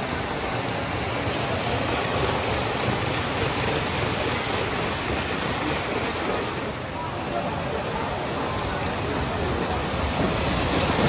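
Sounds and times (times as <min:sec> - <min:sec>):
model train wheels on rails: 0:00.0 - 0:11.0.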